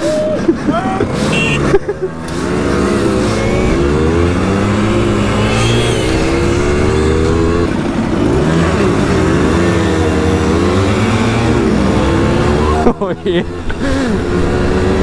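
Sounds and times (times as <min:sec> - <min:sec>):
moped engine revving: 0:00.8 - 0:15.0.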